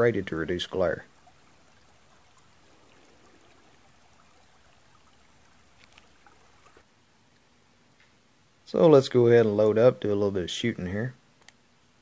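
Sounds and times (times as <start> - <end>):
faint creek water rushing: 0.0 - 6.9
faint clicks: 1.8 - 8.2, 11.4 - 11.6.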